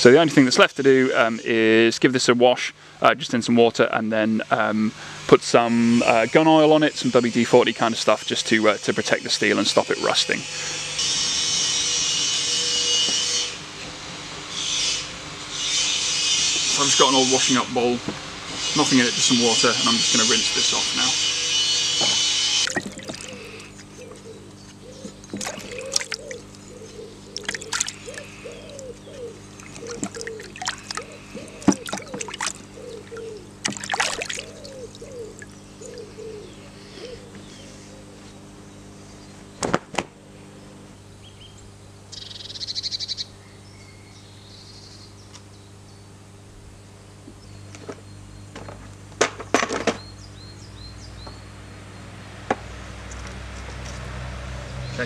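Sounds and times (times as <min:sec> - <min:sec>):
water sloshing in plastic bowl: 0:22.7 - 0:23.6, 0:25.2 - 0:26.6, 0:27.4 - 0:28.8, 0:29.6 - 0:35.6.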